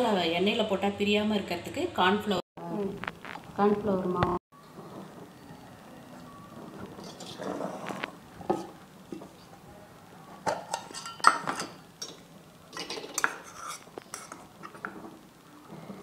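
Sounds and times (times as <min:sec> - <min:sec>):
spoon clinking on steel dishes: 0:10.4 - 0:14.8.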